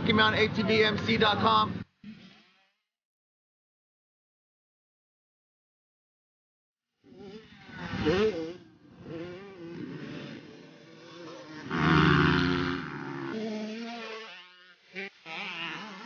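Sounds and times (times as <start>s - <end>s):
race engines revving: 7.1s - 16.0s.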